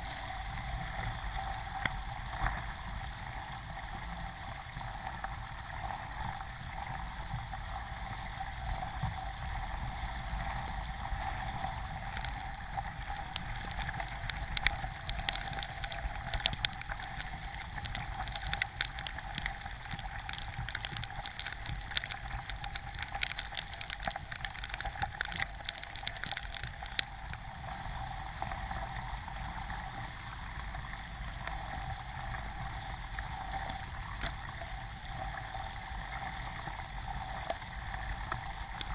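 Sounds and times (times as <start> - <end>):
paddle splashes and drips: 0.0 - 38.9
water rushing along kayak hull: 0.0 - 38.9.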